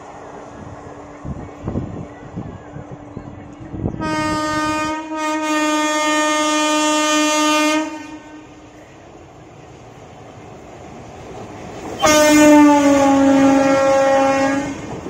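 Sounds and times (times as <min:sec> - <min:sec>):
rail noise clattering: 0:00.0 - 0:15.0
locomotive horn blasts: 0:04.0 - 0:08.6, 0:12.0 - 0:14.9.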